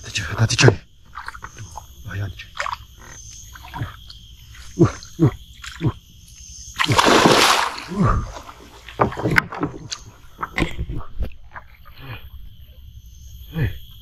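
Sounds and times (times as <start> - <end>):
insects shrilling: 0.0 - 14.0
fish thrashing in water: 6.8 - 10.7.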